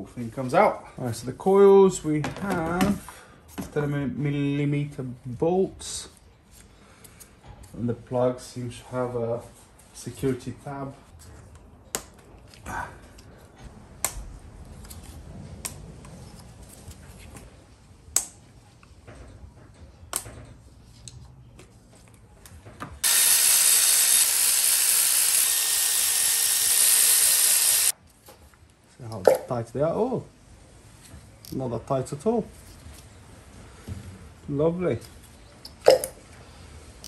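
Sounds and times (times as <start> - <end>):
cordless ratchet running: 23.0 - 27.9.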